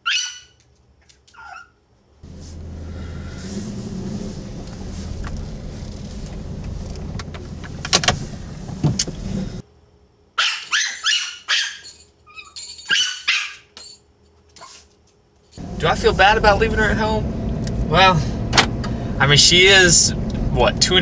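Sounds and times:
small dog yapping: 0.0s - 0.6s, 1.3s - 1.8s, 10.4s - 13.7s, 14.6s - 14.9s
car cabin hum: 2.2s - 9.6s, 15.6s - 21.0s.

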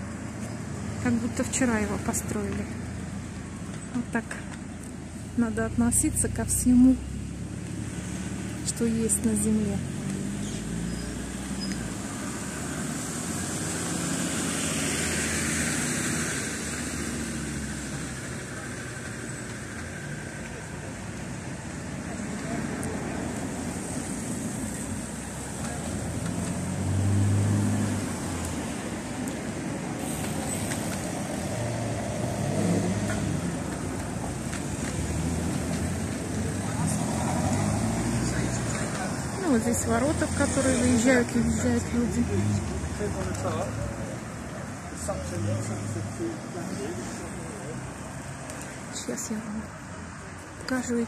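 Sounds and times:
passing motor vehicle rumble: 0.0s - 51.0s
traffic noise: 0.0s - 51.0s.

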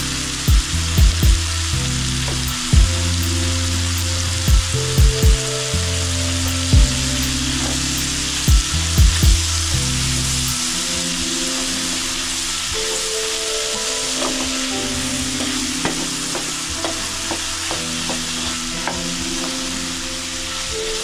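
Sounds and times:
food sizzling in a pan: 0.0s - 21.0s
wooden spoon knocking pan: 14.1s - 19.7s.

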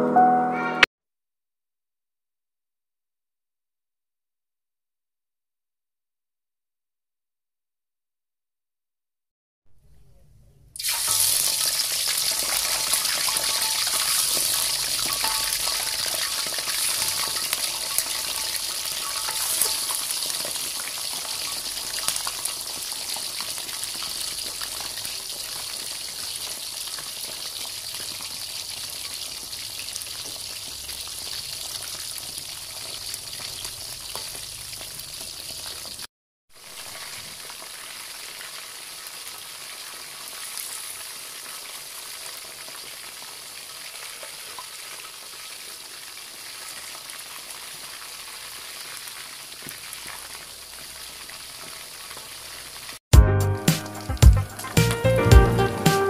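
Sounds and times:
oil sizzling around frying fish: 10.8s - 53.0s, 53.7s - 56.0s.

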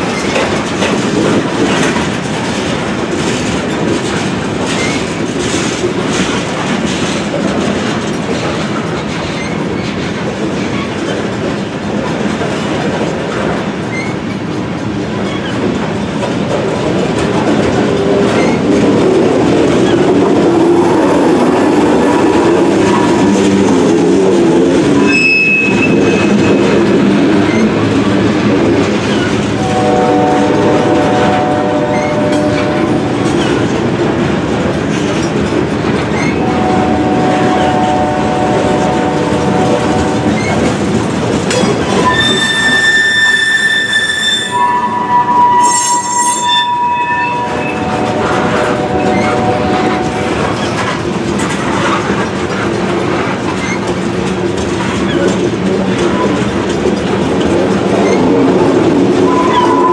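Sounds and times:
train wheels rumbling on rail: 0.0s - 59.9s
wheels squealing: 20.6s - 28.1s, 41.5s - 50.9s.

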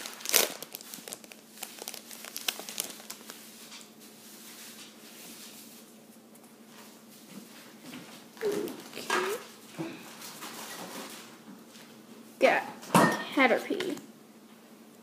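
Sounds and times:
foil wrapper crinkling and ripping: 0.0s - 4.8s.

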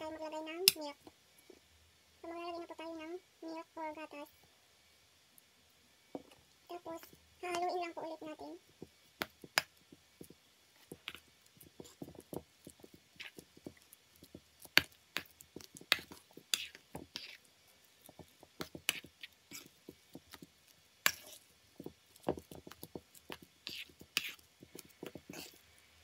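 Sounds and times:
mashed potatoes being stirred: 0.0s - 4.4s, 6.1s - 26.0s
spoon scraping metal bowl: 15.9s - 17.4s, 21.0s - 21.4s, 23.6s - 25.6s.

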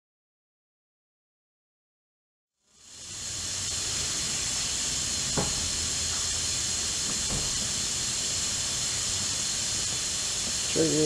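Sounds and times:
steady high hiss: 2.6s - 11.0s.

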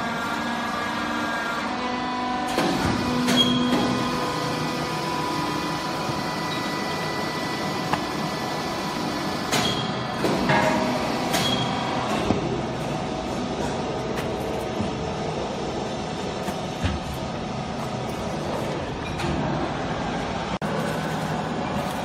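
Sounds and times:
baler machine hum: 0.0s - 22.0s
sharp clanks and knocks: 9.5s - 12.6s.

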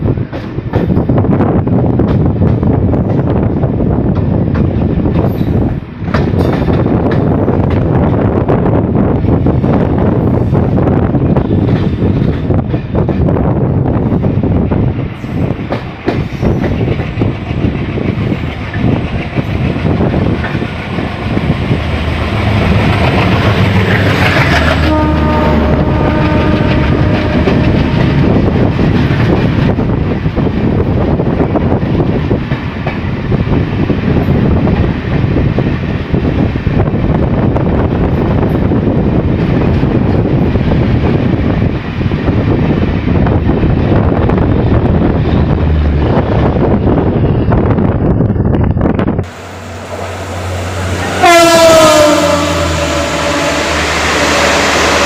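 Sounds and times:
train wheels rumbling and clattering: 0.0s - 55.0s
locomotive horn: 24.5s - 28.3s, 50.0s - 55.0s.

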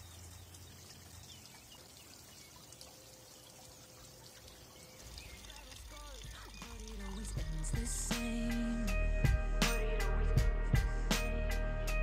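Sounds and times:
water trickling in a channel: 0.0s - 8.6s.

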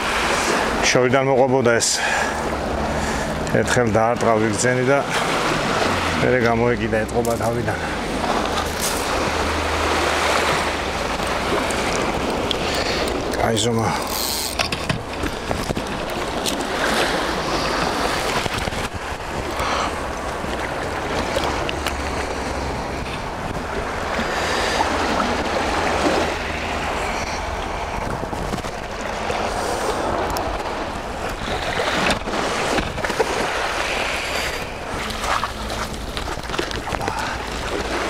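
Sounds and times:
surf washing onto shore: 0.0s - 38.0s
wind buffeting microphone: 14.7s - 38.0s.

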